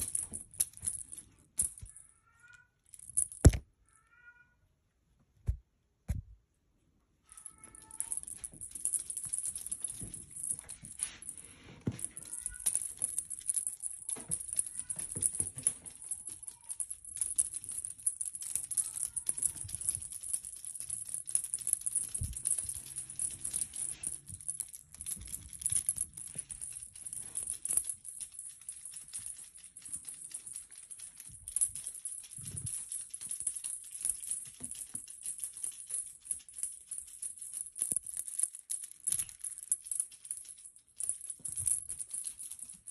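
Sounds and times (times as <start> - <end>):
shaker rattle: 0.0 - 2.0, 7.4 - 42.9.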